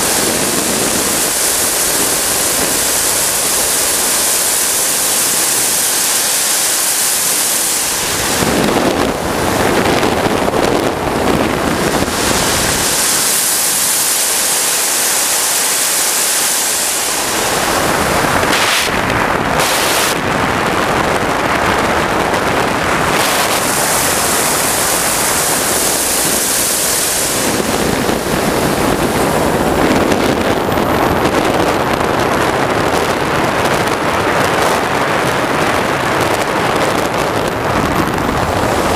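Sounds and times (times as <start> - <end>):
jet turbine rushing hiss: 0.0 - 30.5.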